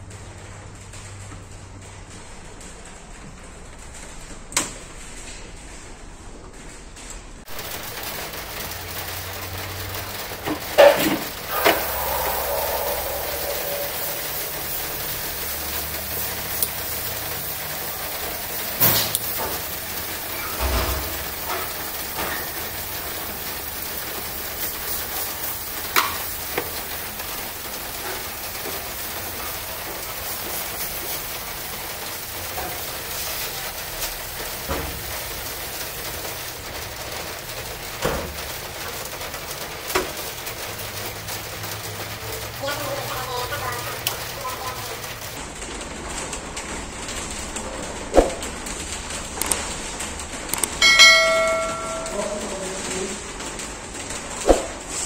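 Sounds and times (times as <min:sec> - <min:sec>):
steady hiss: 0:11.3 - 0:36.2.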